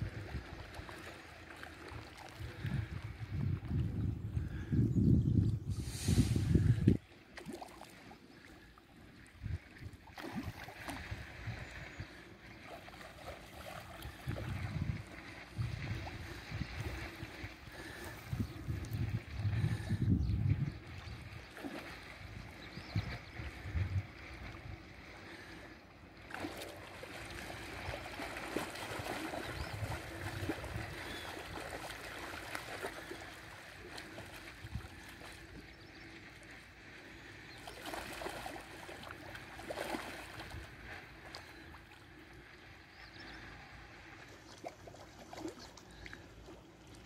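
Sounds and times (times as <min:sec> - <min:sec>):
fish splashing in water: 0:00.0 - 0:03.0, 0:05.8 - 0:08.6, 0:09.9 - 0:18.3, 0:21.3 - 0:23.5, 0:26.2 - 0:35.7, 0:37.3 - 0:41.9, 0:44.4 - 0:47.0
stream water running: 0:00.0 - 0:04.8, 0:05.6 - 0:47.0.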